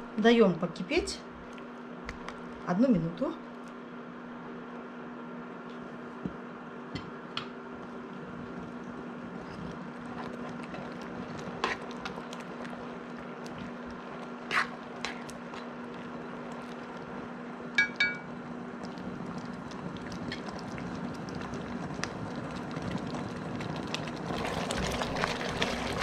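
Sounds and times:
sauce bubbling in a pot: 7.6s - 26.0s
ringing taps: 17.8s - 18.3s.

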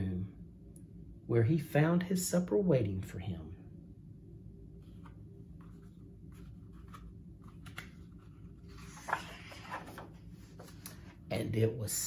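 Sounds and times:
faint low hum: 0.0s - 12.0s
hand rustling paper page: 4.8s - 11.2s.

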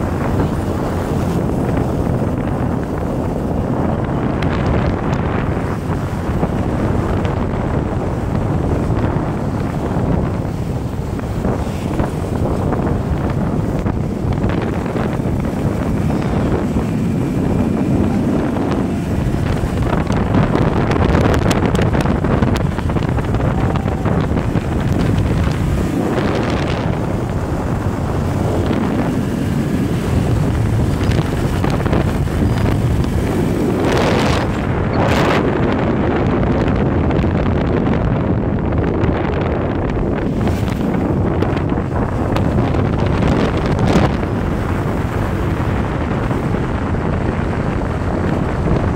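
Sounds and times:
scooter engines running: 0.0s - 35.9s
wind buffeting microphone: 0.0s - 48.9s.

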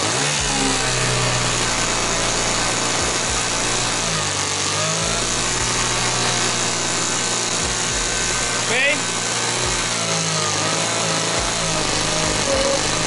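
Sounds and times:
electric starter whirring engine: 0.0s - 13.0s.

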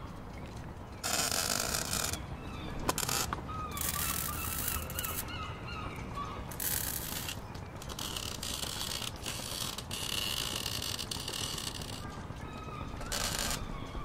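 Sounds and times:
birds calling: 0.0s - 14.0s
welding arc crackling and hissing: 6.6s - 12.1s.

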